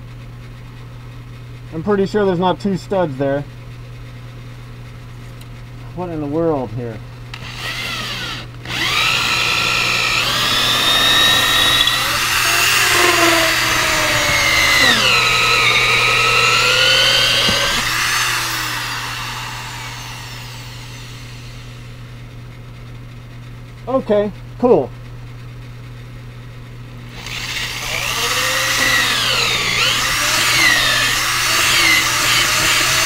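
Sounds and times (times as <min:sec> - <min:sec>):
electric drill boring into wood: 0:07.4 - 0:21.9, 0:27.1 - 0:33.0.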